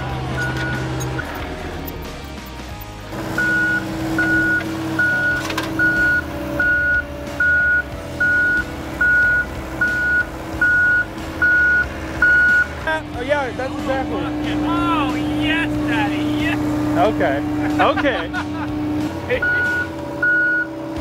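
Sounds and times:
engine running: 0:00.0 - 0:21.0
backup alarm beeping: 0:00.3 - 0:01.4, 0:03.3 - 0:12.8, 0:19.4 - 0:20.7.

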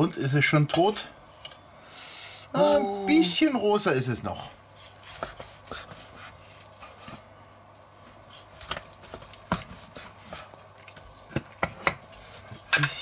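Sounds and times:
blade scraping and tapping board: 0:05.1 - 0:06.0, 0:08.6 - 0:10.5, 0:11.3 - 0:13.0.

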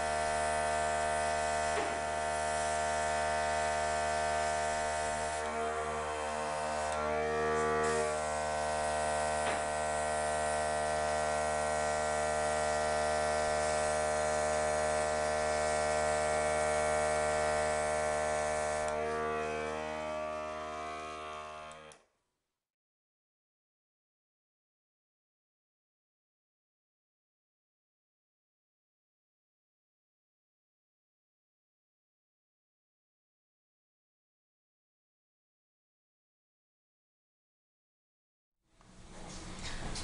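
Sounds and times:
electric clippers buzzing: 0:00.0 - 0:22.1.

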